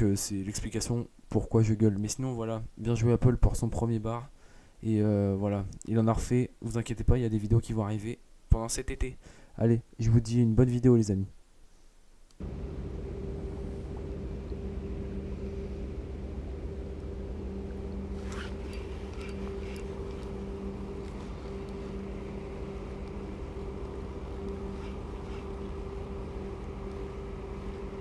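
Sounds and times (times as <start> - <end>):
mechanical drone: 12.4 - 28.0.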